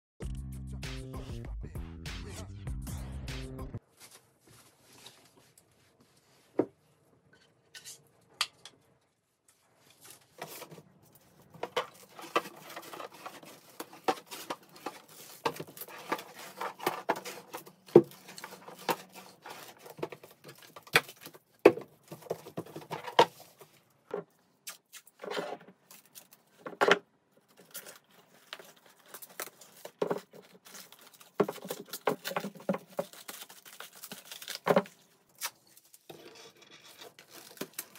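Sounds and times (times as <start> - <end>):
plastic film crinkling: 10.1 - 23.7, 27.4 - 36.2, 36.8 - 37.9.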